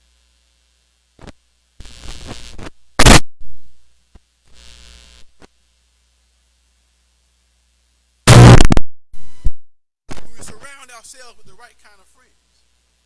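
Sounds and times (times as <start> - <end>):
low mains hum: 0.0 - 8.6, 10.1 - 13.0
static crackle: 0.0 - 13.0
loud speaker pop: 3.0 - 3.3, 8.3 - 10.3.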